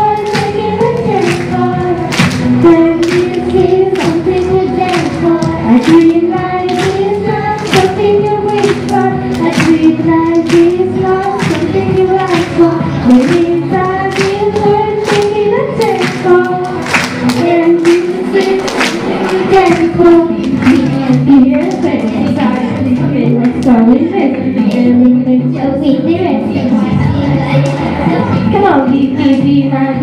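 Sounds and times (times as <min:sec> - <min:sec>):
backing track with steady beat: 0:00.0 - 0:30.0
girls singing pop song: 0:00.0 - 0:30.0.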